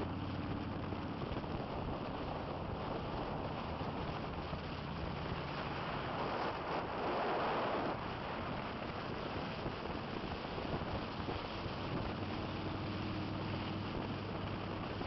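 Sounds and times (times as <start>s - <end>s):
motorcycle engines droning: 0.0s - 6.3s
low engine hum: 0.0s - 15.0s
wind buffeting microphone: 0.0s - 15.0s.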